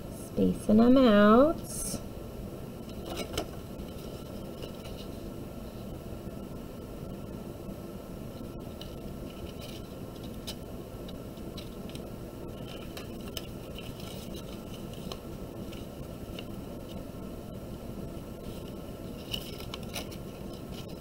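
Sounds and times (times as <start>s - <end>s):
low background noise: 0.0s - 21.0s
paper strips scraping and rustling: 2.9s - 5.2s, 8.7s - 17.0s, 18.4s - 21.0s
small scrapes and clicks: 8.7s - 16.5s, 18.4s - 21.0s.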